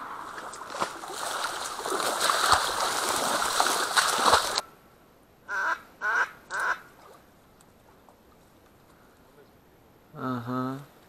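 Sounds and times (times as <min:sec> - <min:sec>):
rustling through reeds: 0:00.0 - 0:04.7.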